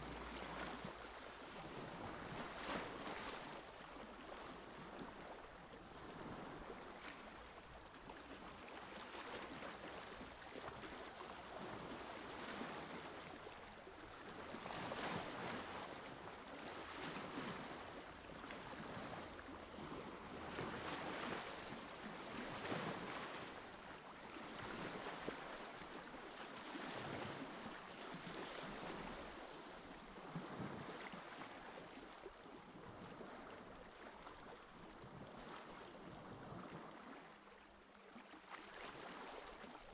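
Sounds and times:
small waves washing onto beach: 0:00.0 - 0:39.9.

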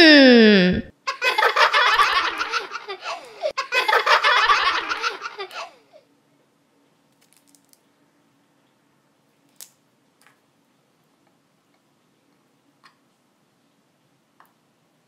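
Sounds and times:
water beads clicking and squishing: 0:07.1 - 0:07.8.

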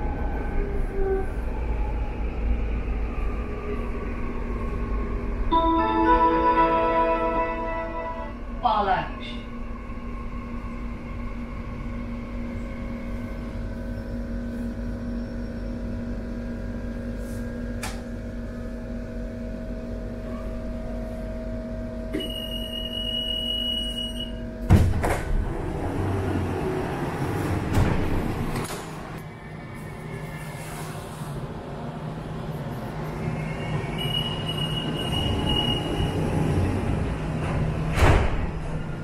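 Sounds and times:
metro train humming: 0:00.0 - 0:39.0
sliding doors thumping: 0:24.7 - 0:29.1, 0:37.1 - 0:38.8.

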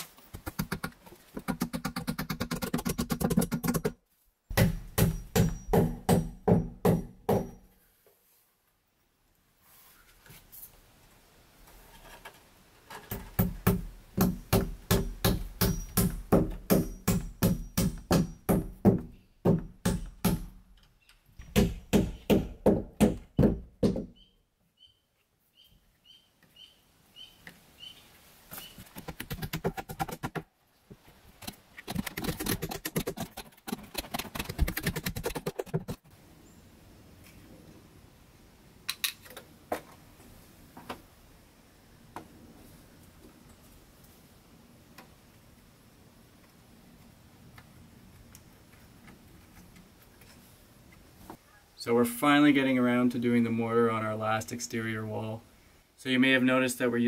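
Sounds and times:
staple hammer knocking: 0:04.5 - 0:07.6.

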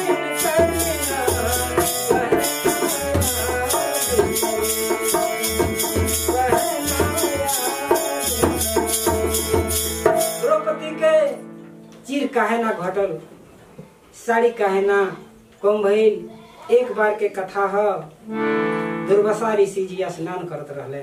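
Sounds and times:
hand drum beating rhythm: 0:00.0 - 0:10.4
harmonium holding chords: 0:00.0 - 0:12.0, 0:18.2 - 0:19.6.

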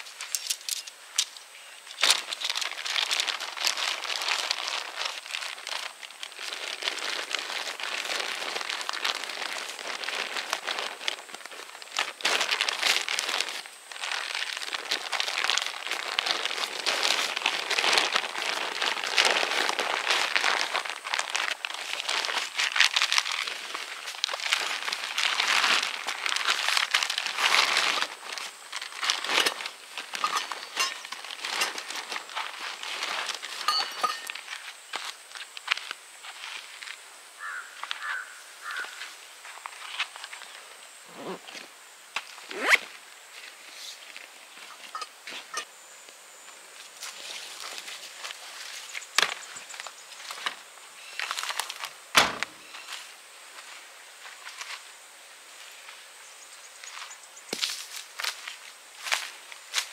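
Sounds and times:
sleeping bag fabric rustling: 0:02.1 - 0:34.4, 0:41.1 - 0:41.6, 0:42.4 - 0:43.0.

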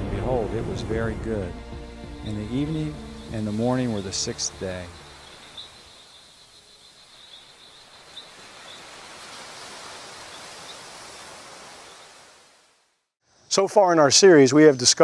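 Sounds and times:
waves washing onto beach: 0:07.8 - 0:12.8.

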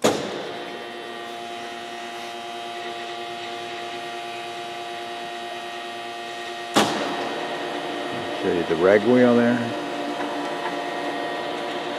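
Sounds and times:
grinder machine hum: 0:00.0 - 0:11.9.

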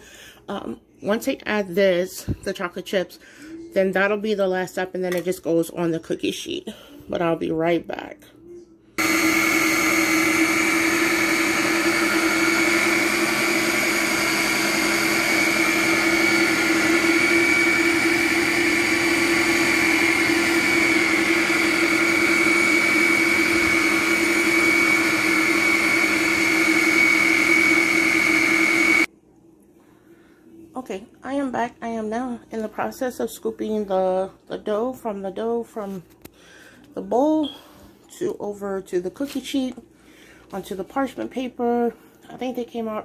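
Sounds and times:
blender motor humming: 0:09.0 - 0:29.1.

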